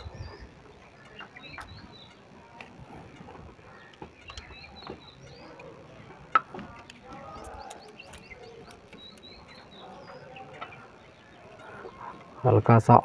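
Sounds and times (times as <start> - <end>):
distant calls: 0.0 - 13.0
faint birds chirping: 0.0 - 13.0
steel tools clicking: 5.6 - 10.8.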